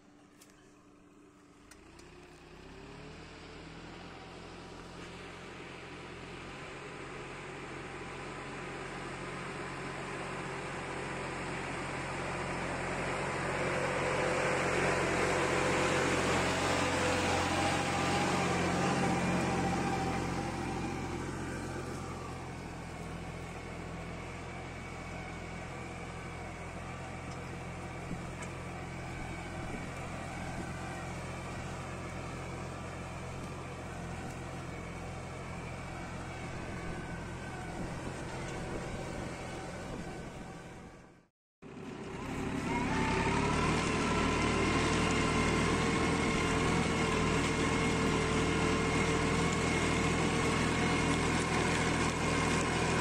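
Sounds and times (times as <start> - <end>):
tractor diesel engine under load: 0.0 - 53.0.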